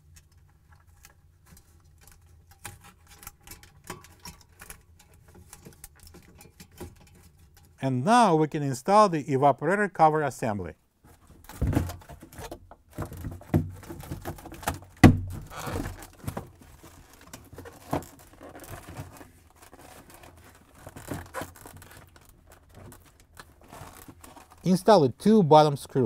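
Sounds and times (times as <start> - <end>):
plastic rustling and scraping: 0.0 - 7.8, 11.0 - 25.0
plastic knocks and clicks: 11.3 - 16.6.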